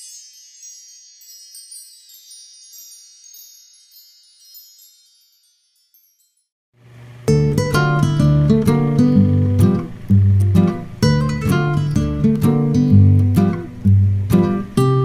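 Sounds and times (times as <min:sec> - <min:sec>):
high bell-like chime tinkling: 0:00.0 - 0:06.6.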